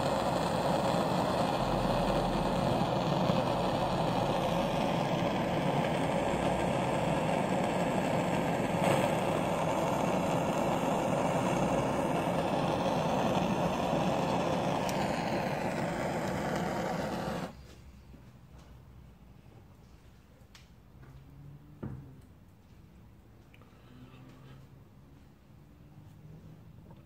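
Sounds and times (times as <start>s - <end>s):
blowtorch flame rushing: 0.0s - 17.6s.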